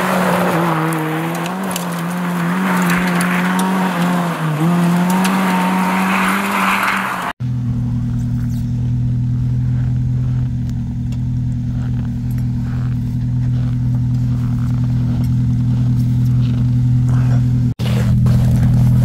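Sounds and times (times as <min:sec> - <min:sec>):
engine idling: 0:07.4 - 0:19.0.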